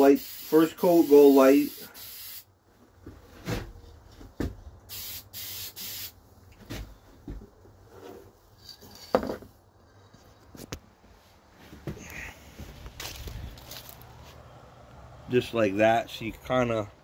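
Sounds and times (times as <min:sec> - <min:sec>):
spray paint can hissing: 0:00.0 - 0:02.5, 0:04.9 - 0:06.2.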